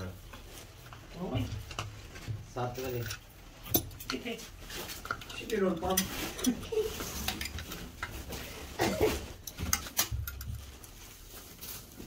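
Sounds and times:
small metal parts clinking: 2.6 - 4.3.

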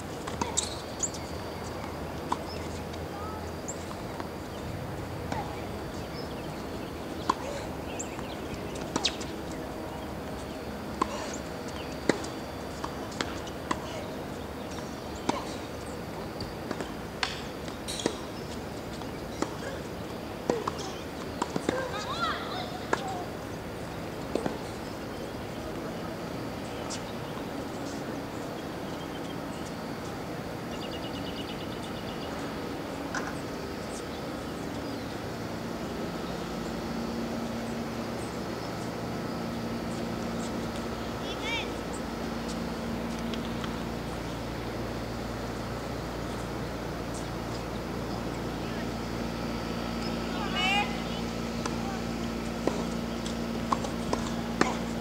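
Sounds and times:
outdoor background hum: 0.0 - 55.0
tennis balls being struck: 0.2 - 25.3, 51.1 - 55.0.

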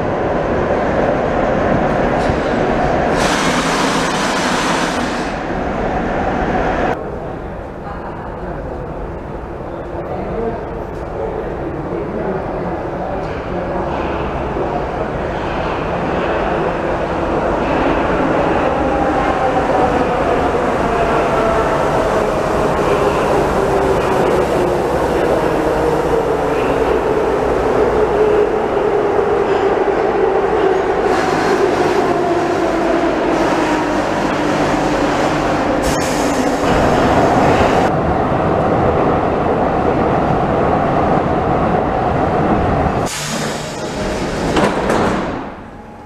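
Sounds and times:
metro train braking: 2.0 - 7.0, 14.6 - 38.0, 42.9 - 46.0.

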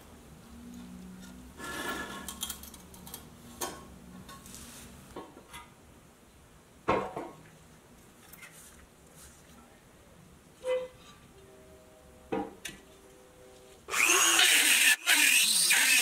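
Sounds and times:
metal scraping: 10.6 - 14.1.

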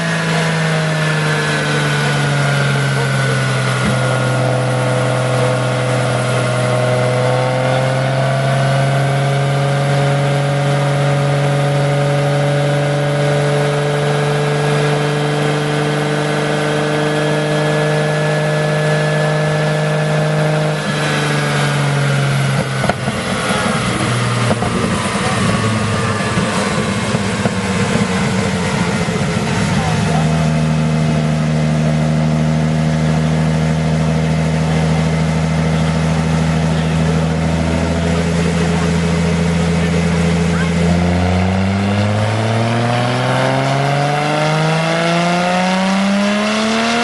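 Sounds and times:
car engine revving under load: 0.0 - 47.0
sharp exhaust crack: 0.0 - 47.0.

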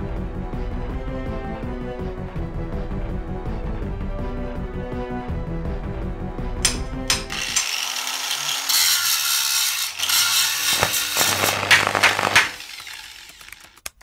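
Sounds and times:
sharp clicks: 6.6 - 7.8, 10.6 - 14.0
ratcheting clanks: 6.6 - 13.8
metal-grinding hiss: 7.3 - 13.4.

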